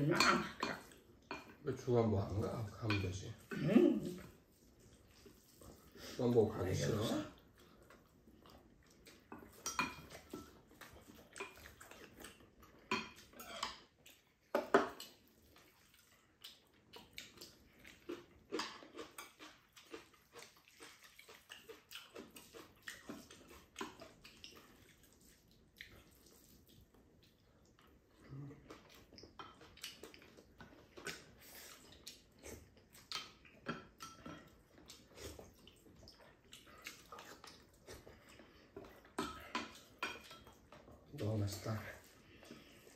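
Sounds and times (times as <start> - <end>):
spoons and chopsticks clinking on bowls: 2.8 - 3.2, 9.5 - 10.6.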